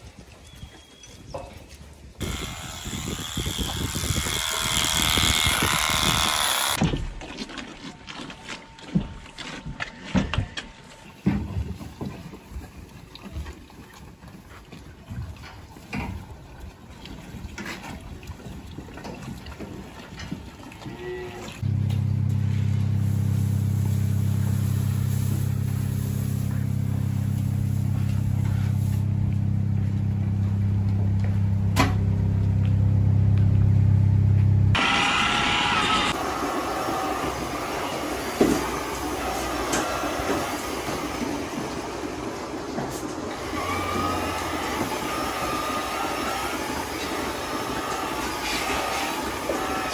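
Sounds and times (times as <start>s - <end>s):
milking machinery hiss and hum: 2.2s - 6.8s, 21.6s - 32.1s, 34.7s - 49.9s
diesel engine idling: 21.6s - 34.7s.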